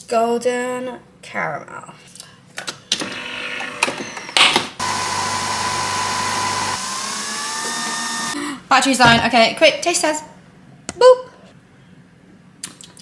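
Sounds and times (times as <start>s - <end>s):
coffee machine motor whirring: 4.8s - 8.4s.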